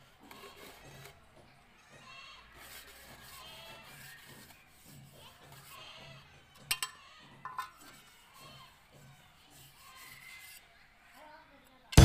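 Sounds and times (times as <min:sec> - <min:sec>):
trowel clinking on metal: 0:06.7 - 0:08.0.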